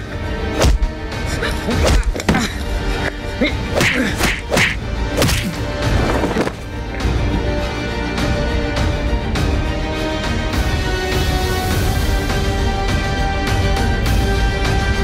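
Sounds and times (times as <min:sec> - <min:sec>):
dramatic background music: 0:00.0 - 0:15.0
fight thuds and whacks: 0:03.8 - 0:05.6.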